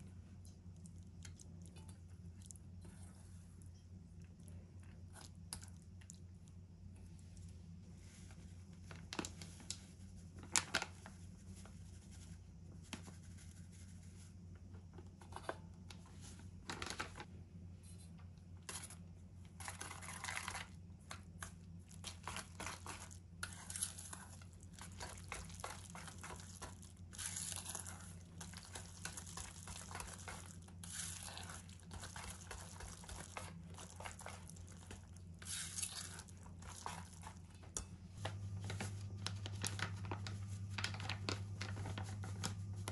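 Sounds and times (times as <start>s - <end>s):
plastic bag crinkling: 22.0s - 37.5s, 38.2s - 42.7s
whisk scraping against bowl: 22.2s - 37.9s.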